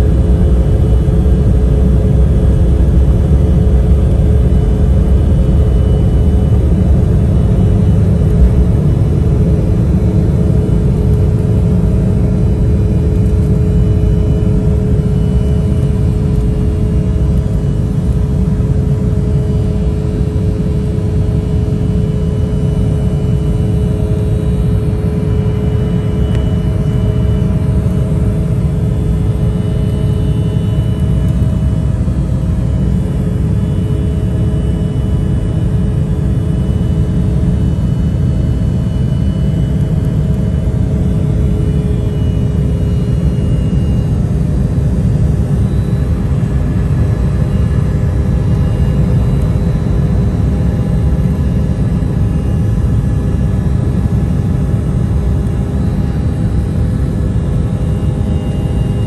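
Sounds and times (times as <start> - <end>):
steady cabin hum: 0.0 - 15.4
jet engines rumbling: 0.0 - 59.0.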